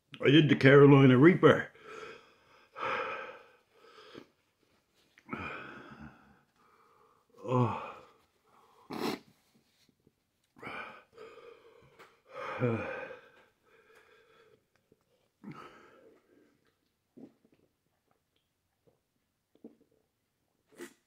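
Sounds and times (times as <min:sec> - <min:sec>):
man breathing hard: 0:01.8 - 0:04.4, 0:10.6 - 0:14.6
man groaning: 0:07.4 - 0:08.0, 0:12.4 - 0:13.2.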